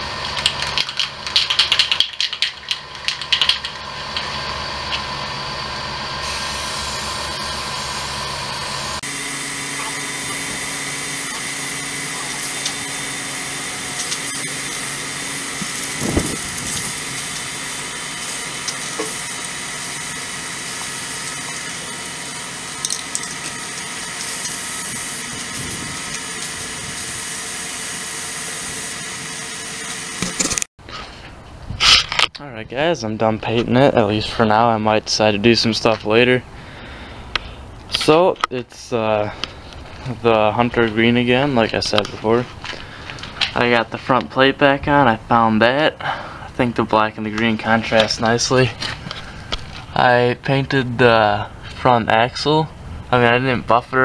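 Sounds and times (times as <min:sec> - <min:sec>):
spray can ball rattling: 0:00.3 - 0:03.8, 0:24.2 - 0:27.4
spray paint hissing: 0:06.2 - 0:07.4, 0:09.0 - 0:30.6.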